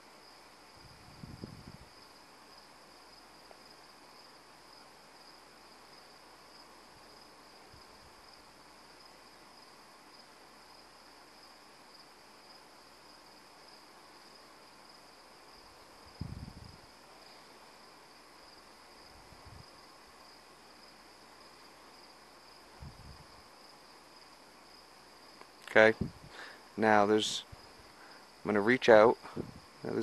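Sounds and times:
night insects trilling: 0:00.0 - 0:30.0.

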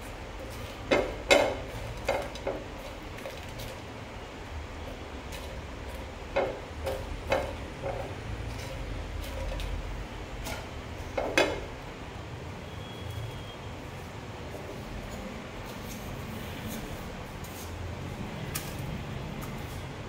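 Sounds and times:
spatula scraping and knocking pan: 0:00.3 - 0:03.8, 0:05.3 - 0:11.8.

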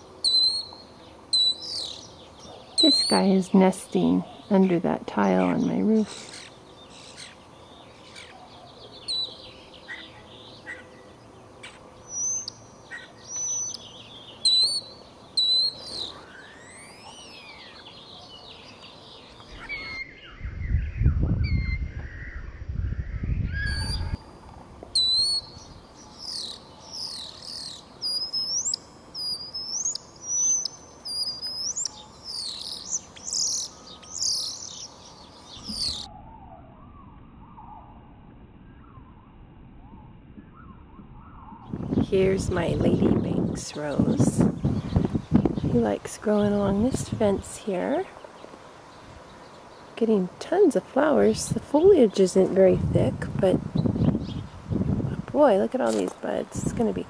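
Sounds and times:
starling singing: 0:00.0 - 0:20.2, 0:25.0 - 0:36.1.

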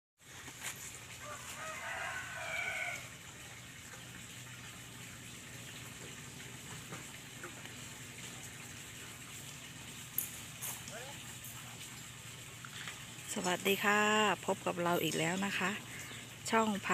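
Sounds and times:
rooster crowing: 0:01.2 - 0:03.2.

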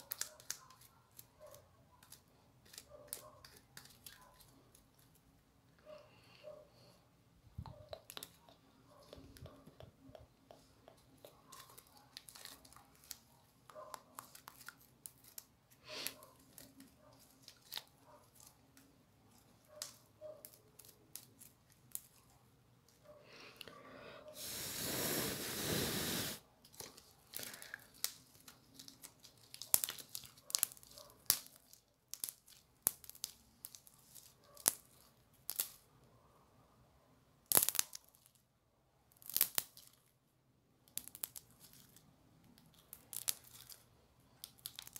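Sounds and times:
slime crackling and popping: 0:00.0 - 0:01.3, 0:27.3 - 0:35.8, 0:37.5 - 0:38.4, 0:39.2 - 0:40.0, 0:40.8 - 0:44.9.

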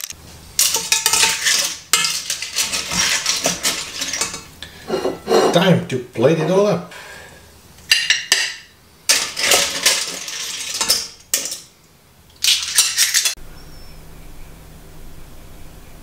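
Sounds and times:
tongs and dishes clattering: 0:00.0 - 0:05.6, 0:07.9 - 0:11.7
faint steady background noise: 0:00.1 - 0:16.0.

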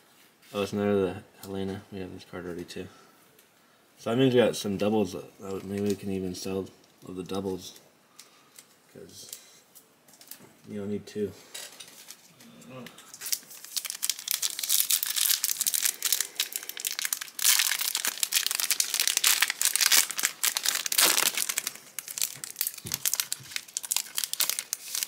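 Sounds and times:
foil pack crinkling and tearing: 0:13.1 - 0:25.0.

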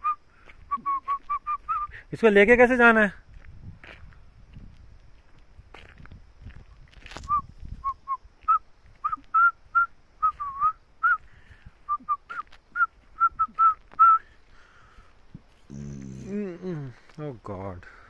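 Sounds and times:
person whistling a tune: 0:00.0 - 0:01.9, 0:07.2 - 0:14.3.

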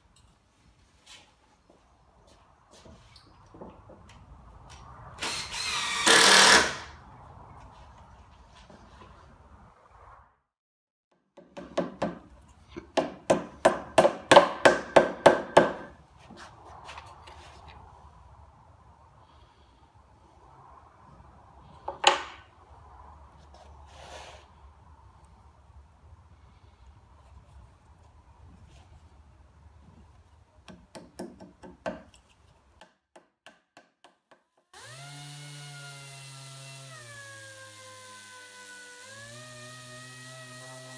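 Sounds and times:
hammer tapping wooden plugs: 0:11.4 - 0:15.9, 0:30.6 - 0:32.2, 0:32.8 - 0:34.7
electric sander humming: 0:34.8 - 0:40.9.

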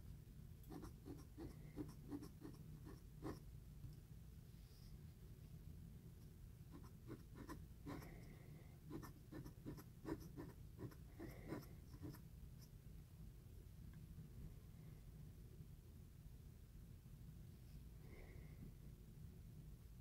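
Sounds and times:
pen nib scratching on paper: 0:00.7 - 0:03.4, 0:06.7 - 0:08.3, 0:08.9 - 0:12.7.

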